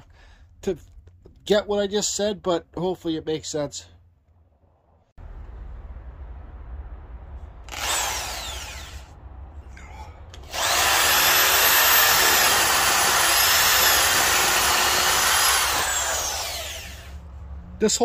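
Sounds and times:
power drill boring into wood: 0:07.7 - 0:09.1, 0:10.4 - 0:17.2.

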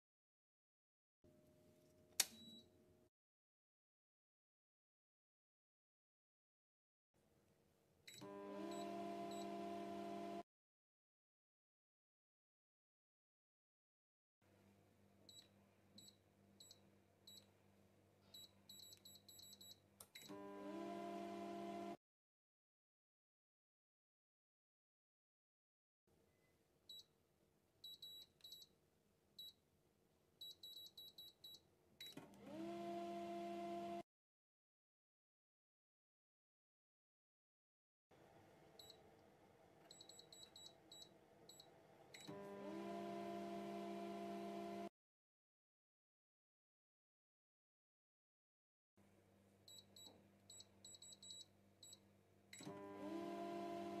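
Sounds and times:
microwave control panel beeps: 0:02.2 - 0:02.7, 0:15.3 - 0:17.5, 0:27.8 - 0:28.7, 0:39.9 - 0:42.4, 0:49.7 - 0:52.0
microwave oven humming: 0:08.2 - 0:10.4, 0:42.2 - 0:44.9, 0:52.6 - 0:54.0.

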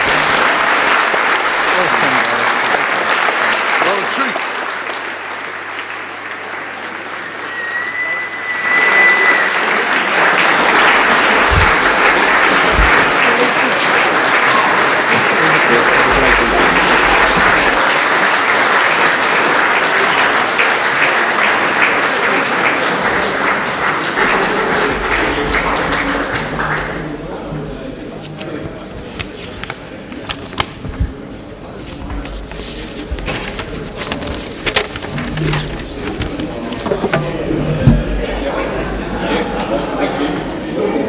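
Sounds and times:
sustained applause: 0:00.0 - 0:41.0
high whistle-like tone: 0:07.2 - 0:10.0.

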